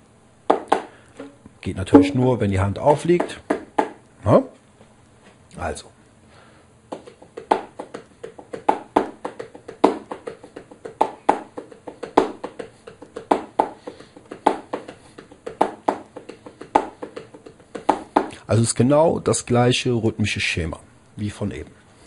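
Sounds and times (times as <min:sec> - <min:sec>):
bongos playing a groove: 0:02.0 - 0:02.3.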